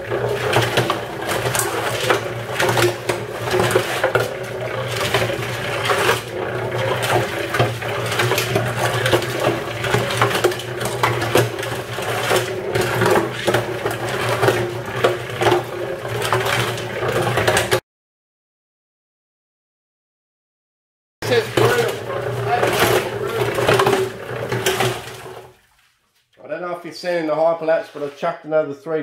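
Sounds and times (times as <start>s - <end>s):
cement mixer motor humming: 0.0s - 17.8s, 21.2s - 25.6s.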